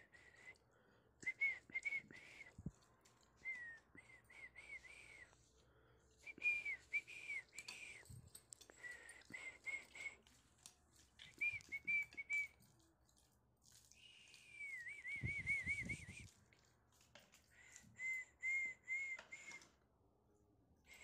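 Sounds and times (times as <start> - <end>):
person whistling: 1.2 - 2.6, 3.4 - 5.3, 6.2 - 8.0, 8.8 - 10.2, 11.3 - 12.6, 14.4 - 16.3, 17.9 - 19.8.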